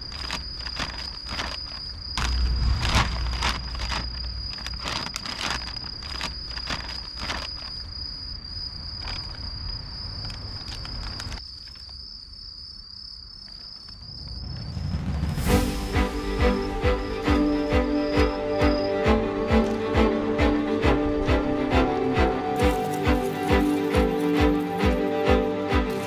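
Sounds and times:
plastic sack crinkling: 0.0s - 7.9s, 22.6s - 26.0s
insect chirring: 0.0s - 26.0s.

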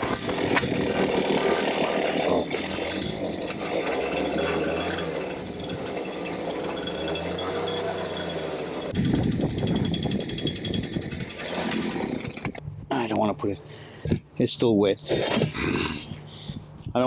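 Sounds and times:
leaf blower whining: 0.0s - 12.6s.

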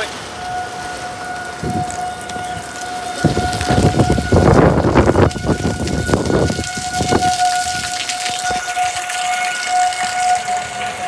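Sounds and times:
alarm steady high tone: 0.0s - 11.0s
rain patter: 0.0s - 11.0s.

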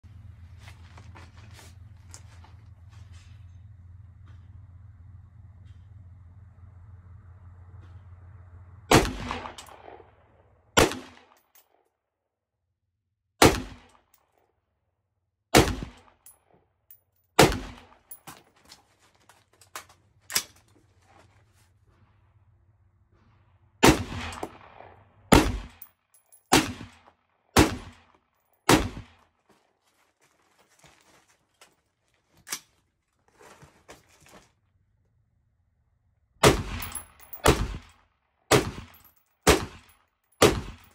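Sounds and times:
rifle shots: 8.9s - 10.2s, 10.8s - 11.4s, 13.4s - 14.0s, 15.5s - 16.2s, 17.4s - 18.0s, 23.8s - 25.9s, 26.5s - 28.1s, 28.7s - 29.2s, 36.4s - 37.9s, 38.5s - 40.9s.

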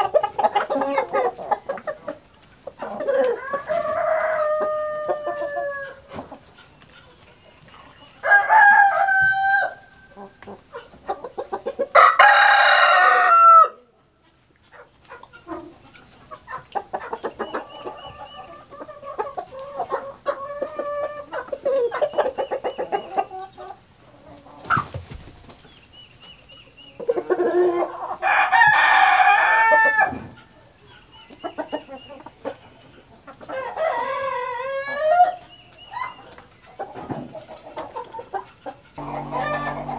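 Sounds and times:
hens clucking: 0.0s - 13.4s, 14.2s - 39.9s
roosters crowing: 3.1s - 6.1s, 8.2s - 10.2s, 11.9s - 13.8s, 27.7s - 30.3s, 33.5s - 35.4s, 39.0s - 39.9s.

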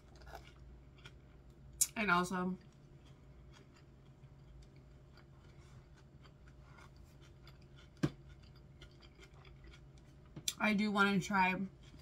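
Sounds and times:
salad crunching: 2.7s - 10.0s.

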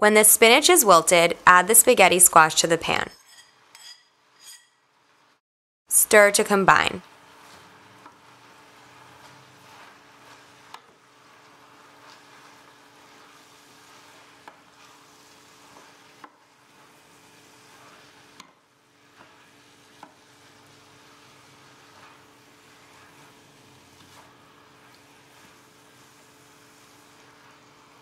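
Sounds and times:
soft sizzle: 0.0s - 28.0s
wooden spoon stirring in pan: 0.5s - 5.4s, 6.2s - 28.0s.

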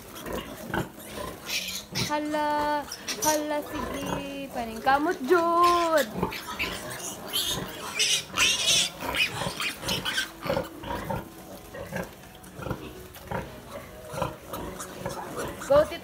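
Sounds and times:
piglets squealing and grunting: 0.0s - 16.0s.

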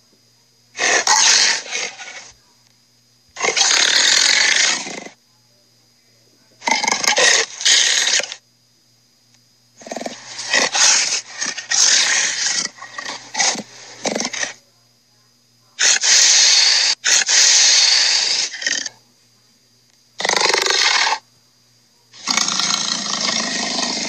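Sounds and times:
dinosaur growls and snarls: 0.8s - 2.3s, 3.4s - 5.2s, 6.6s - 8.4s, 9.8s - 14.6s, 15.8s - 18.9s, 20.2s - 21.2s, 22.2s - 24.0s
cartoon dinosaur roaring: 22.2s - 24.0s.

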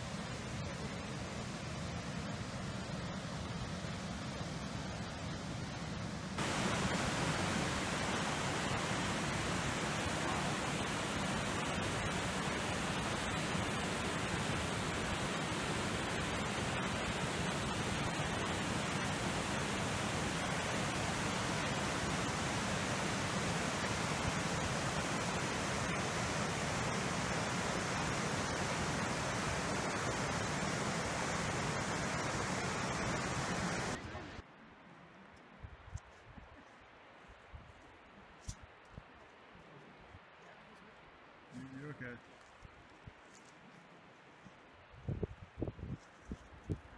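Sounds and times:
waterfall rushing over rock: 6.4s - 34.4s.

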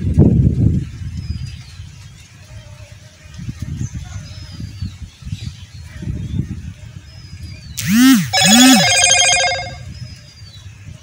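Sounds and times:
wind rumble on microphone: 0.0s - 7.8s, 9.8s - 11.0s
bell ringing in a trill: 7.8s - 9.8s.

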